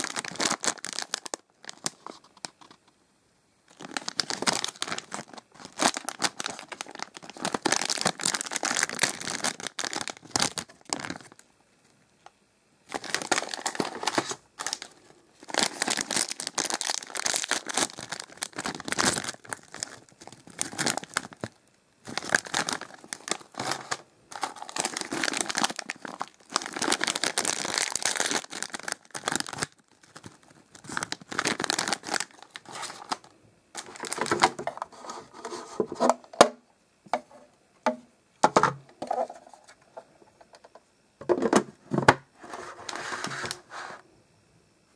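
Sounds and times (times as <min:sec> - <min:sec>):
foil snack bags crinkling: 0:00.0 - 0:02.7, 0:03.7 - 0:11.4, 0:12.9 - 0:34.9.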